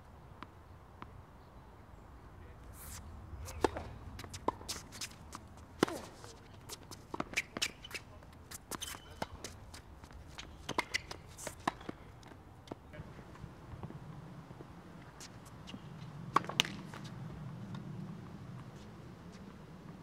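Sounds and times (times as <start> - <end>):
shoes scuffing on court: 2.6 - 20.0
tennis ball hit by rackets: 3.4 - 8.0, 10.4 - 12.8, 16.3 - 18.0.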